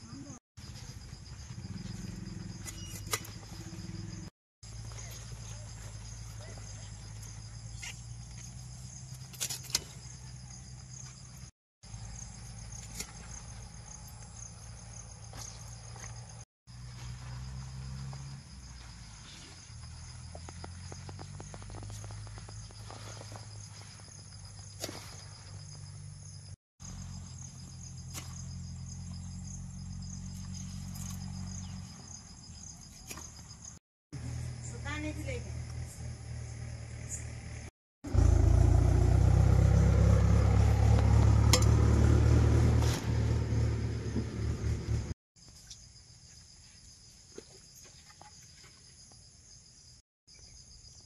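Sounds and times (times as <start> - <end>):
insects trilling: 0.0 - 41.4
blade snapping through stalks: 9.3 - 10.0, 28.1 - 28.4, 42.8 - 43.2.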